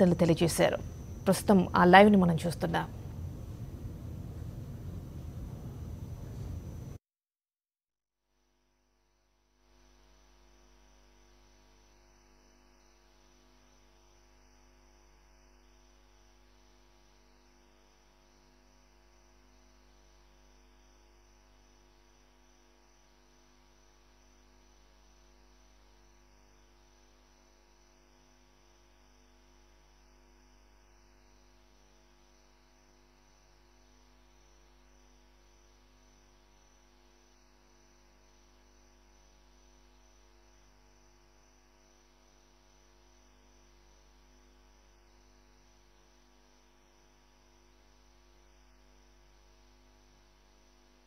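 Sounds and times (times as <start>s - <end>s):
faint electrical mains hum: 0.0s - 7.0s.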